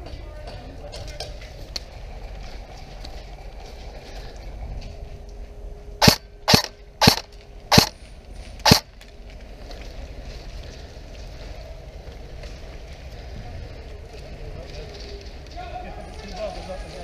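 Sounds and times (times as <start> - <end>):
sharp airsoft gun cracks: 6.0 - 8.0, 8.6 - 8.8.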